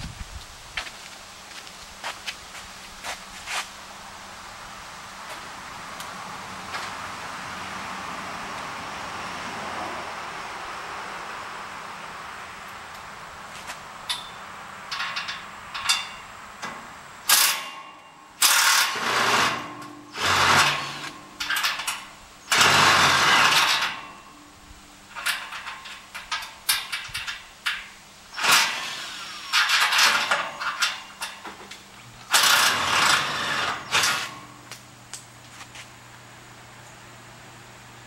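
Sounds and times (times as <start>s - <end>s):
power tool bursts: 17.3s - 17.8s, 18.4s - 24.1s, 28.3s - 31.0s, 32.3s - 34.5s.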